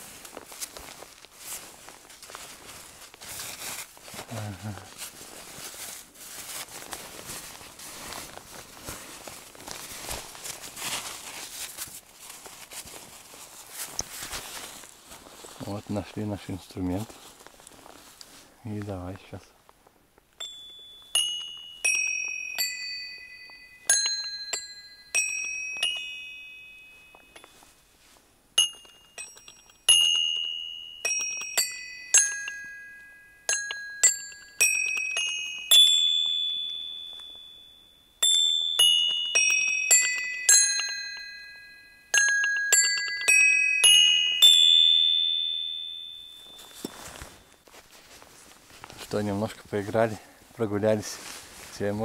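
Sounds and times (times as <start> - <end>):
tuned metal bells playing tune: 20.4 - 27.9, 28.6 - 47.8.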